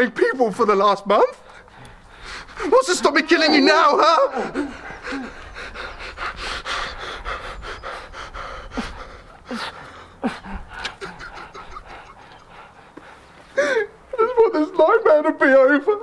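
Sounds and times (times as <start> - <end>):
person panting heavily: 1.4 - 2.8, 4.3 - 14.1.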